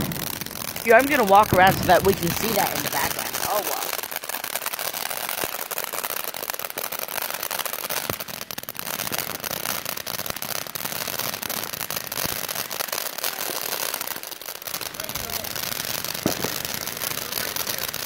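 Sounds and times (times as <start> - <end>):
firework sparks hissing: 0.0 - 18.0
fine crackling: 0.6 - 4.3.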